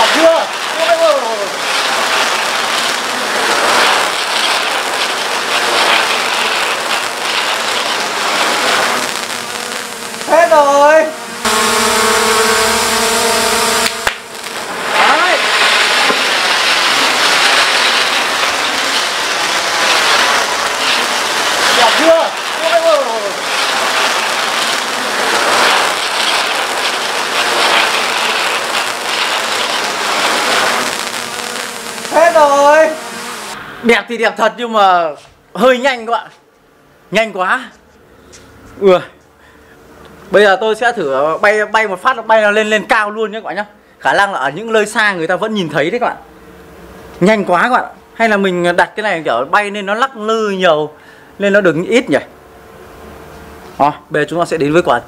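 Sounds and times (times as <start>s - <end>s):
drone propeller noise: 0.0s - 33.8s
firework fountain hissing: 0.0s - 36.1s.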